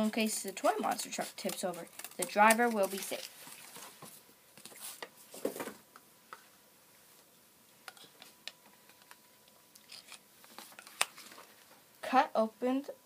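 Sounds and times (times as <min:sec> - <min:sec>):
cardboard rustling: 0:00.4 - 0:05.8.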